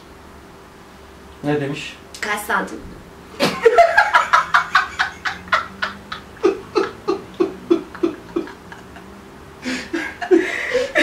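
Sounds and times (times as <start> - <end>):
people laughing: 3.4 - 11.0.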